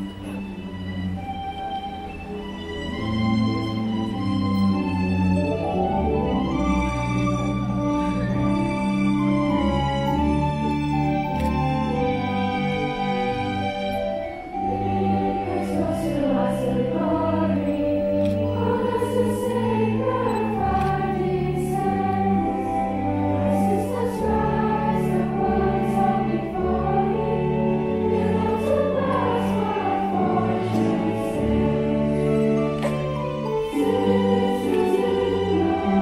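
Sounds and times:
low held accompaniment notes: 0.0s - 36.0s
crowd of girls singing: 14.8s - 36.0s.

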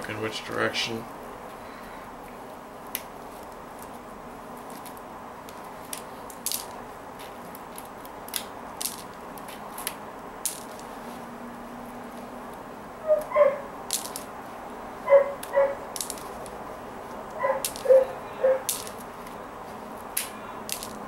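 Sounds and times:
room noise: 0.0s - 21.0s
plastic beads clicking: 4.7s - 10.9s, 13.2s - 14.3s, 15.4s - 16.6s, 17.3s - 18.0s, 18.6s - 19.4s, 20.0s - 21.0s.

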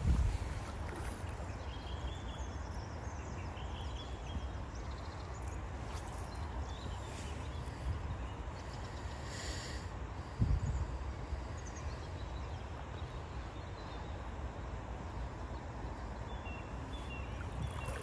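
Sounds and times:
wind rumbling on microphone: 0.0s - 2.6s, 3.2s - 8.7s, 10.2s - 12.6s, 17.1s - 18.0s
shallow river washing: 0.0s - 10.3s, 12.2s - 18.0s.

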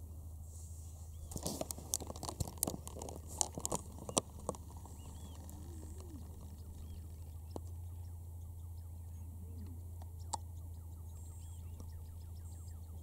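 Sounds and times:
low steady hum: 0.0s - 13.0s
crunching clicks and knocks: 1.3s - 7.7s
faint bird calls: 2.0s - 13.0s.

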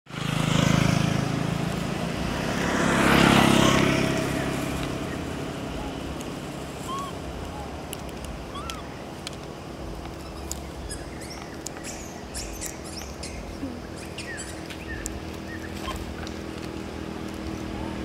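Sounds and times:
steady low hum: 4.3s - 18.0s
baby monkey squeaking: 6.8s - 7.8s, 8.5s - 9.0s, 10.1s - 16.2s.

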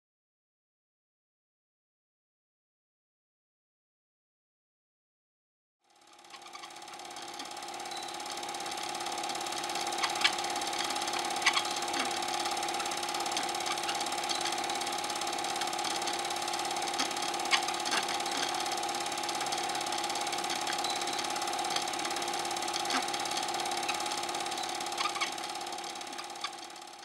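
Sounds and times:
film projector whirring and clattering: 5.9s - 27.0s
motor hum: 5.9s - 27.0s.

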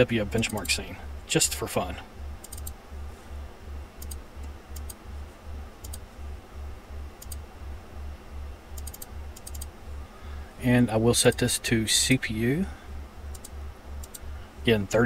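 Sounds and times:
computer mouse buttons clicking: 2.4s - 2.8s, 4.0s - 5.0s, 5.8s - 6.0s, 7.2s - 7.4s, 8.8s - 9.7s, 13.3s - 14.3s.

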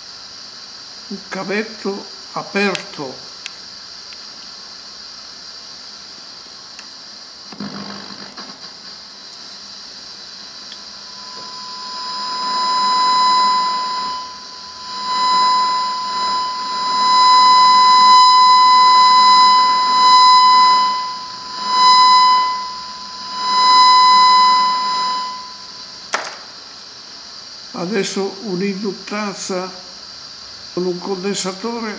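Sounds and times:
high-pitched electronic tone: 10.9s - 26.0s.

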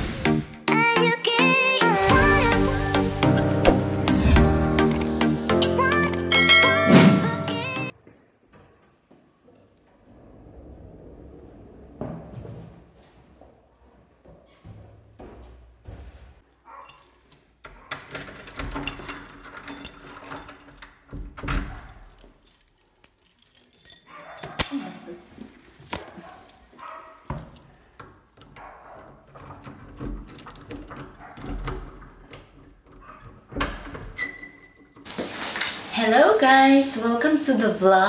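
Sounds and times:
metallic jingling: 6.3s - 8.4s, 16.6s - 25.2s, 25.8s - 35.8s.

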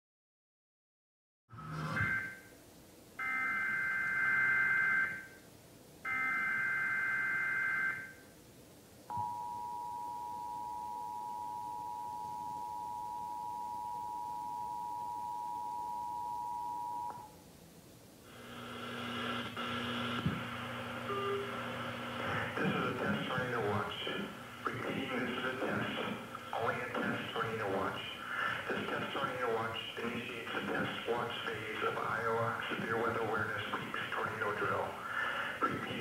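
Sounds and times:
two-tone attention signal: 1.7s - 2.5s, 21.1s - 21.6s.

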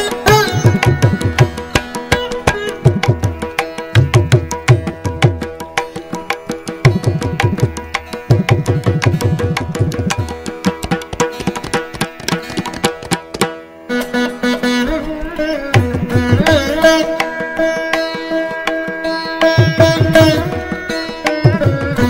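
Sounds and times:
veena plucked notes: 0.0s - 22.0s
rapid hand drum strokes: 6.8s - 13.5s.

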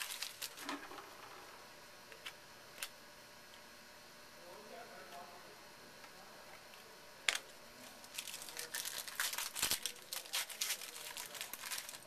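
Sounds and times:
wrapper crinkling and tearing: 0.0s - 0.6s, 8.0s - 12.0s.

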